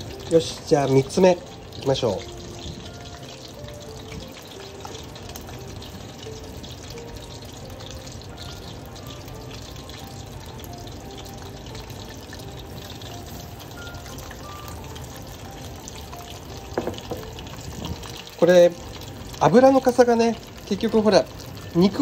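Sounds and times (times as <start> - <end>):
chicken deep-frying in oil: 0.0 - 22.0.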